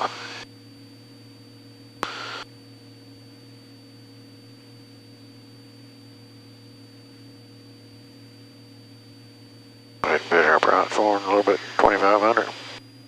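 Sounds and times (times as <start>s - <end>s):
muffled aircraft engine drone: 0.0s - 13.0s.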